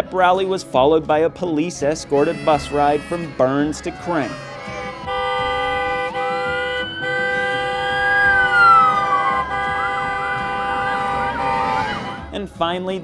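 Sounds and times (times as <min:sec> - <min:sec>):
police siren wailing: 0:04.2 - 0:12.3
siren yelp: 0:04.8 - 0:12.3.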